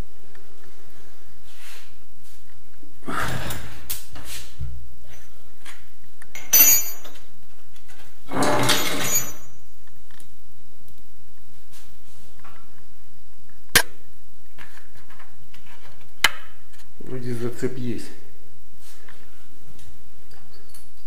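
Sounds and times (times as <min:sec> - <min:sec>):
short metallic clink: 0:06.4 - 0:07.2.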